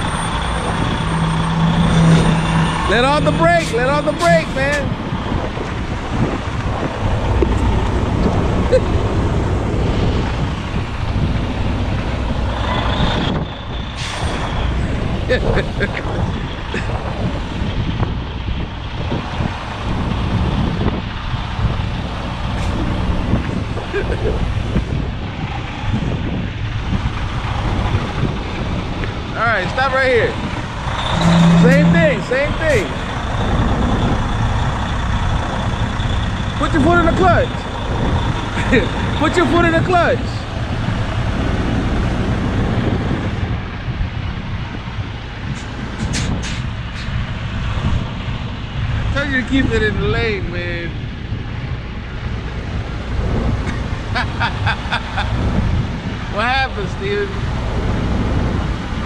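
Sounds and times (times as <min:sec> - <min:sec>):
diesel truck engine idling: 0:00.0 - 0:17.9, 0:26.6 - 0:43.2.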